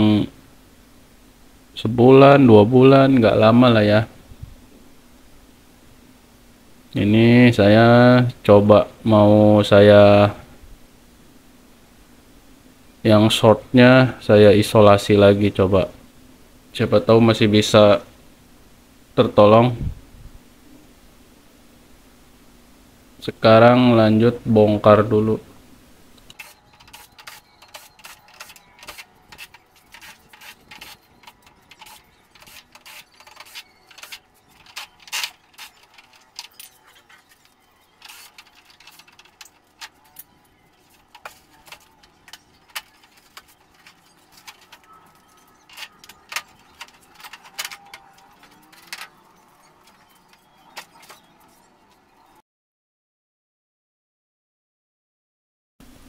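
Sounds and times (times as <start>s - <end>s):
loose screws rattling: 26.3s - 51.7s.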